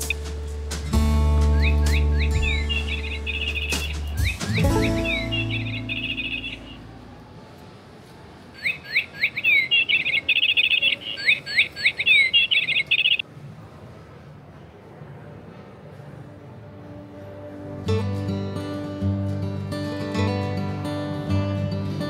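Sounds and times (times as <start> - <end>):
songbird whistles and trills: 0.0 - 7.0, 8.6 - 13.2.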